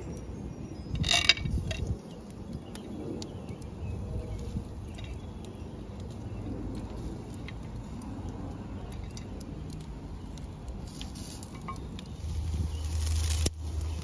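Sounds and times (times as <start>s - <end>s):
burning wood crackling: 0.0s - 14.0s
metal skewers clinking on grill rack: 0.9s - 2.0s.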